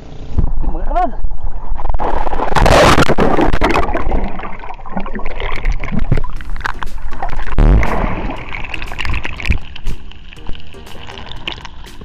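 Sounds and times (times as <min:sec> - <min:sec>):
underwater bubbles: 0:01.3 - 0:12.0
underwater clicks: 0:02.8 - 0:12.0.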